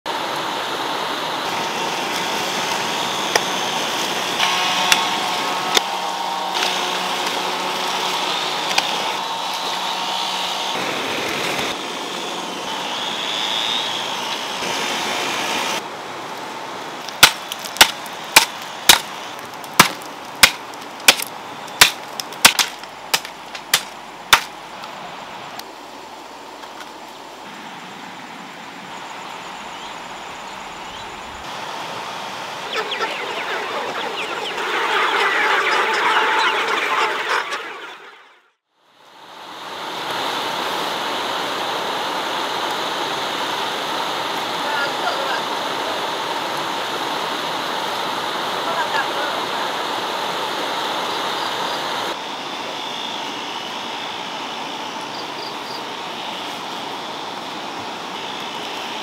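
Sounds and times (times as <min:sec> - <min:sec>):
chickens clucking: 0:32.6 - 0:38.4.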